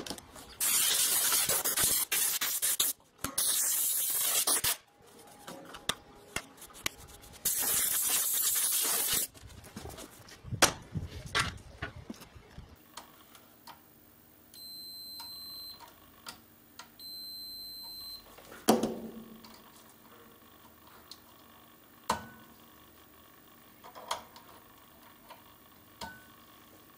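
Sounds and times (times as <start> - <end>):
aerosol can hissing: 0.6 - 4.8, 7.4 - 9.3.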